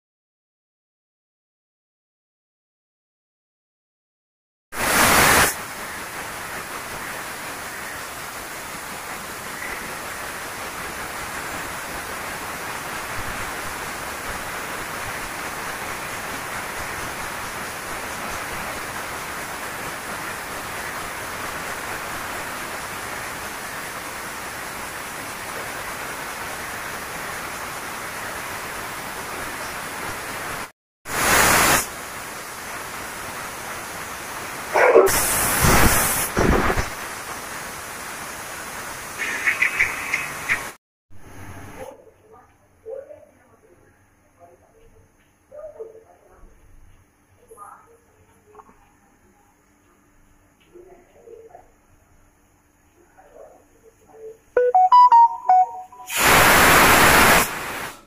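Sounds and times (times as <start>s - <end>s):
pressure cooker steam blast: 4.8s - 5.6s, 31.1s - 32.0s, 34.9s - 37.0s, 56.1s - 58.0s
steam hissing: 4.8s - 40.7s, 56.1s - 58.0s.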